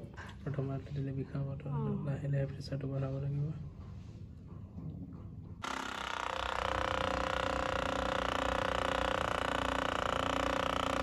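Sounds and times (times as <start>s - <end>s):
massage gun motor pulsing: 5.6s - 11.0s.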